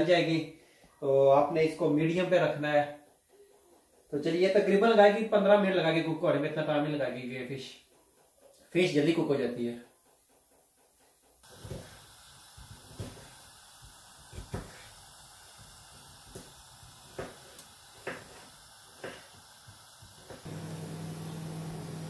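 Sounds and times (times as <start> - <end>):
fish sizzling under grill: 11.4 - 22.0.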